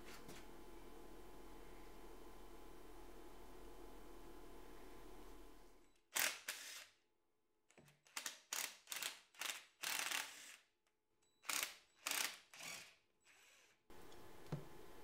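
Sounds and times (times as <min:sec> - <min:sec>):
power ratchet bursts: 0:08.5 - 0:10.6.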